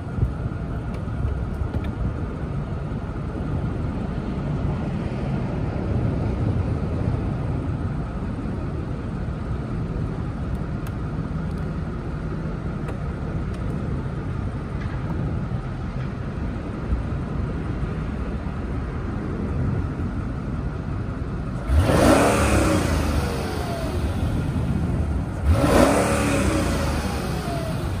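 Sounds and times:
car engine idling: 0.0 - 28.0
engine revving: 21.6 - 28.0.

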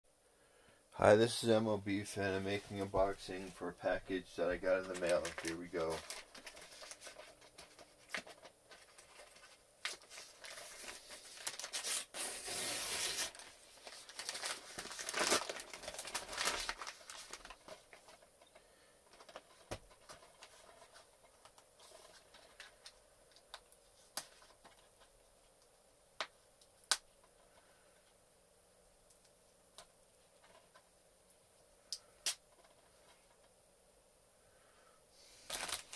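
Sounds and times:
packaging crinkling and rustling: 2.2 - 25.2, 35.4 - 35.9
envelope tearing open: 8.9 - 17.7, 35.5 - 35.9.

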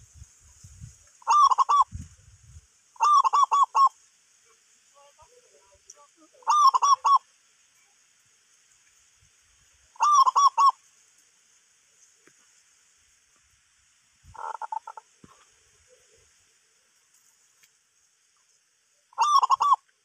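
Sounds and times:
bird calling: 1.2 - 1.9, 3.0 - 4.0, 5.2 - 7.3, 9.9 - 10.8, 14.3 - 16.3, 19.1 - 19.9.

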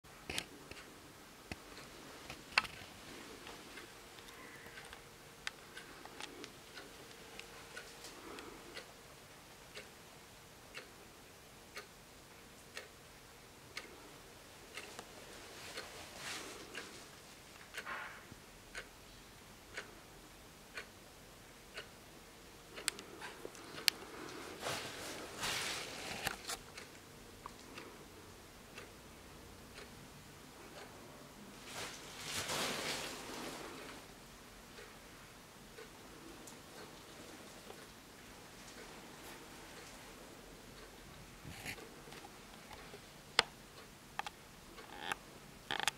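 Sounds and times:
wall clock ticking: 0.1 - 45.9
rustling handling noise: 14.9 - 17.3, 23.3 - 26.7, 31.6 - 34.0
irregular clicks: 41.7 - 45.9.

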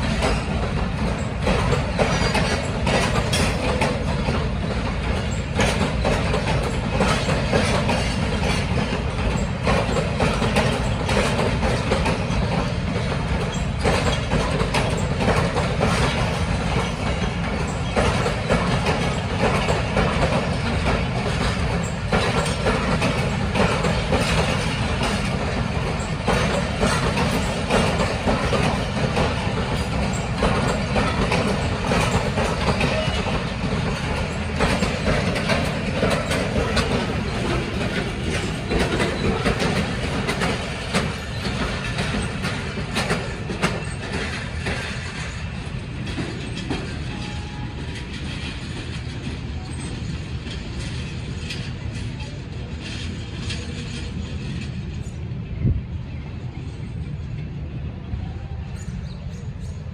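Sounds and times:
wheels clicking over rail joints: 0.0 - 55.8
train wheels rumbling on rail: 0.0 - 59.9.

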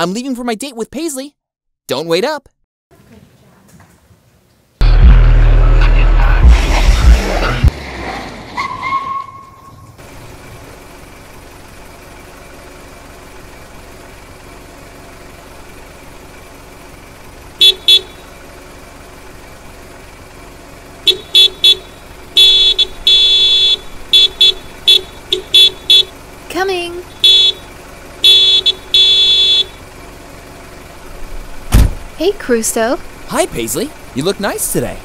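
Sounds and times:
car horn honking: 17.6 - 18.4, 21.0 - 26.2, 27.0 - 29.8.

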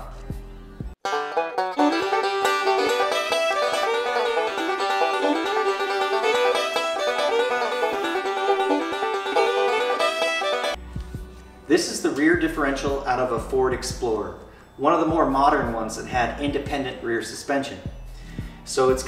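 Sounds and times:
plucked banjo melody: 1.0 - 11.2.

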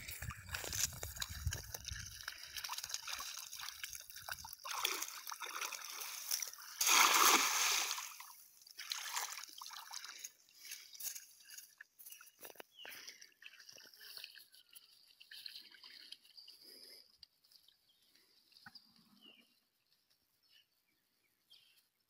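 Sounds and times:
water sloshing: 0.0 - 10.8
cast net splashing into water: 2.6 - 10.1.

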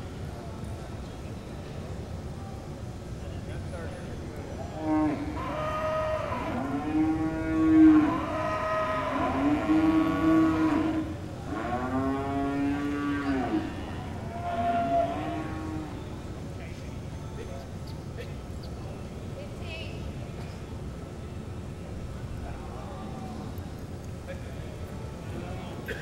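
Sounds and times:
cattle mooing: 4.8 - 16.0.

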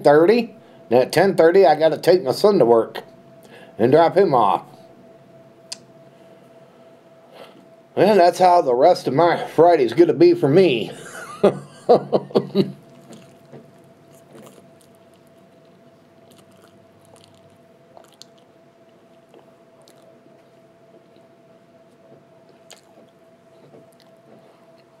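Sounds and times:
man chewing food: 12.3 - 25.0.

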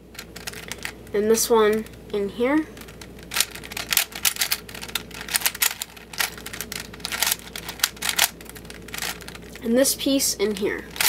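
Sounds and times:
twisty puzzle clicking: 0.1 - 2.0, 2.7 - 9.6.

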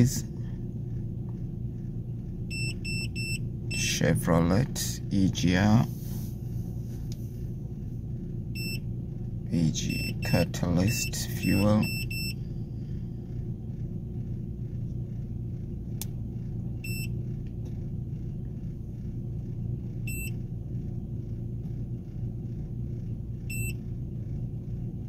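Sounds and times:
car engine idling: 0.0 - 25.0
short electronic beeps: 2.5 - 3.9, 9.8 - 12.4.

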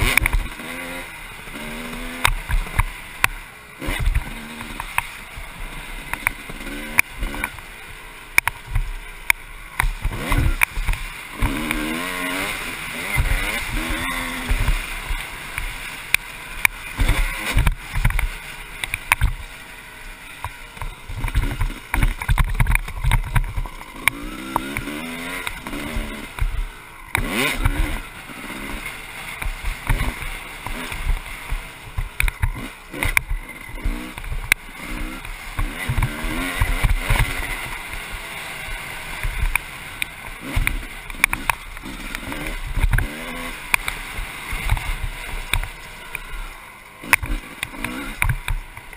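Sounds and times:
motorcycle engine revving: 0.0 - 48.9.

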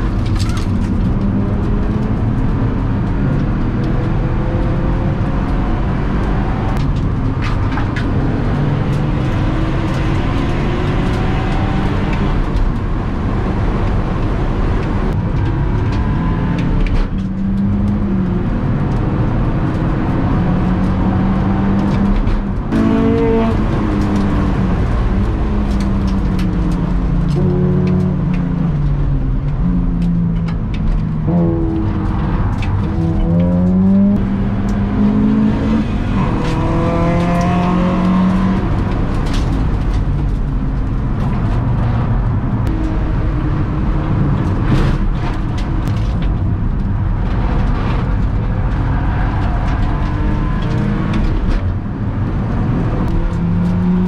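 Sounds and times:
car engine at full throttle: 0.0 - 54.0
road and tyre noise: 0.0 - 54.0.

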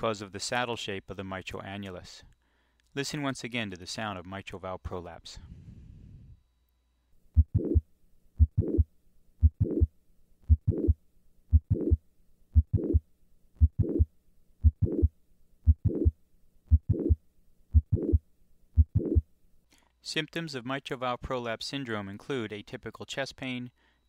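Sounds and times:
heart click and murmur: 7.4 - 7.8, 8.4 - 9.9, 10.5 - 12.0, 12.6 - 13.0, 13.6 - 15.1, 15.7 - 18.2, 18.8 - 19.2
heartbeat through stethoscope: 7.4 - 7.8, 8.4 - 12.0, 12.6 - 13.0, 13.6 - 18.2, 18.8 - 19.2.

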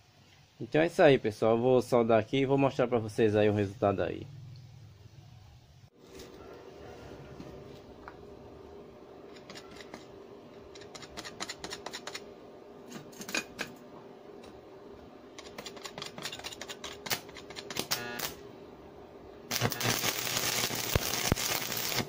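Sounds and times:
steady hum: 7.5 - 22.0
metallic clicks and scrapes: 9.3 - 10.1, 10.7 - 12.3, 15.3 - 17.9.

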